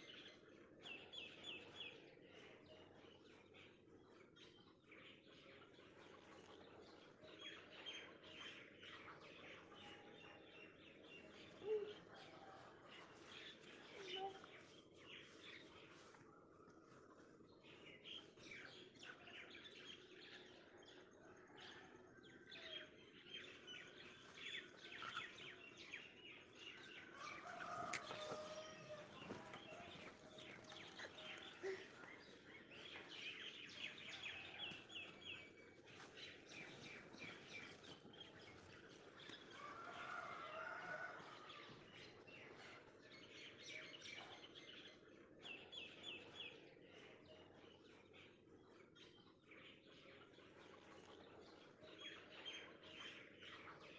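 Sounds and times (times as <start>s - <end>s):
birds chirping and trilling: 22.6s - 53.9s.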